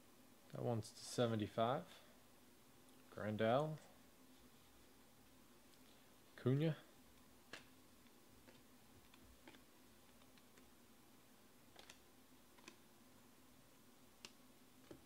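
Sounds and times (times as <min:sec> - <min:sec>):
low room hum: 0:00.0 - 0:15.0
cards clicking: 0:11.7 - 0:12.8.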